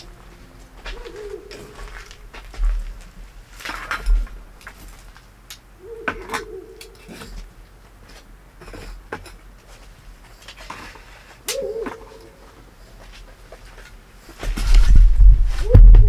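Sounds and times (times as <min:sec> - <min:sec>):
animal calling: 0:00.8 - 0:02.2, 0:05.8 - 0:07.4, 0:11.5 - 0:12.6.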